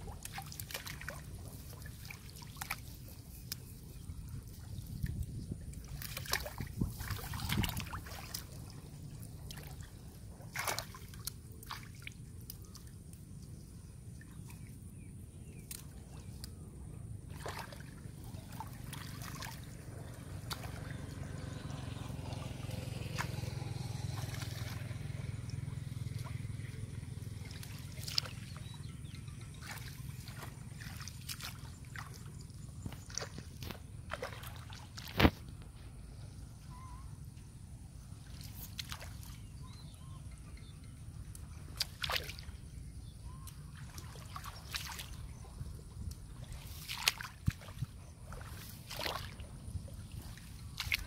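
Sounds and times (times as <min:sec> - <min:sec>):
small splashes: 0:00.0 - 0:16.6, 0:17.3 - 0:35.8, 0:38.0 - 0:40.1, 0:41.2 - 0:51.0
person wading through water: 0:00.0 - 0:36.7, 0:37.5 - 0:51.0
muddy water sloshing and dripping: 0:00.0 - 0:51.0
plants pulled up by roots: 0:32.8 - 0:35.9.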